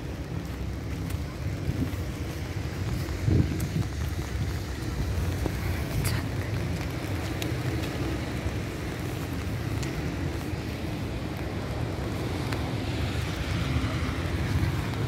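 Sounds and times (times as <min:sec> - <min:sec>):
low street noise: 0:00.0 - 0:15.0
wind rumbling on microphone: 0:00.0 - 0:15.0.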